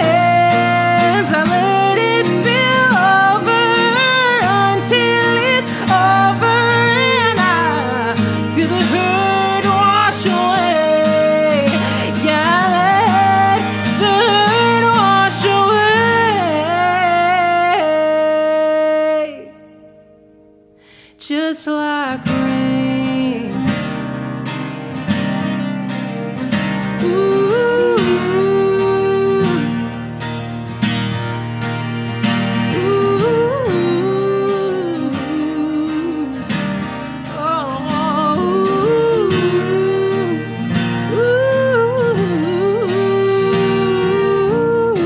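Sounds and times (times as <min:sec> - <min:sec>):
woman singing: 0:00.0 - 0:20.1, 0:21.0 - 0:24.8, 0:26.6 - 0:30.2, 0:32.4 - 0:45.0
acoustic guitar: 0:00.0 - 0:45.0.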